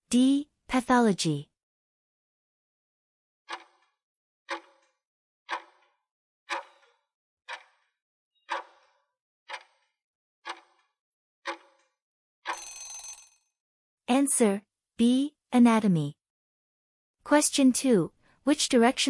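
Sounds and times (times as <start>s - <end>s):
clock-like ticking: 3.5s - 3.9s, 4.5s - 4.8s, 5.5s - 5.9s, 6.5s - 7.9s, 8.5s - 8.9s, 9.5s - 9.9s, 10.5s - 10.8s, 11.5s - 11.8s.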